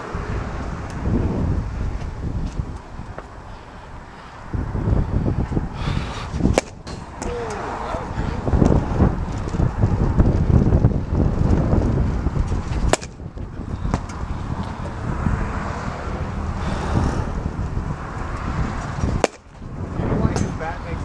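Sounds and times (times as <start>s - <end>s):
wind buffeting microphone: 0.0s - 21.0s
sharp cracks: 6.5s - 7.7s, 12.8s - 13.3s, 19.2s - 19.6s.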